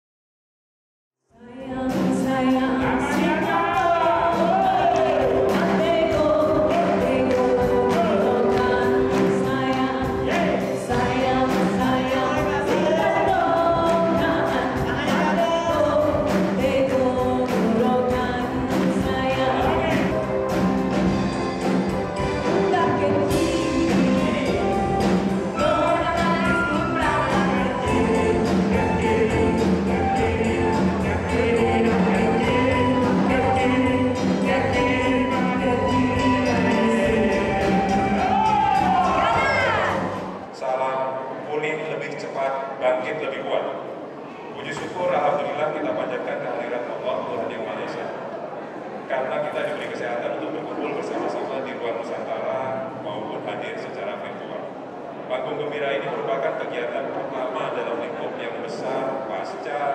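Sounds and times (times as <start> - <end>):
upbeat band music with singing: 1.5 - 40.5.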